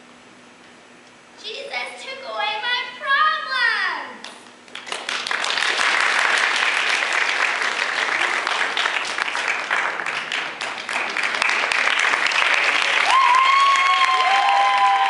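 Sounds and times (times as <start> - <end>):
audience applauding: 4.7 - 15.0.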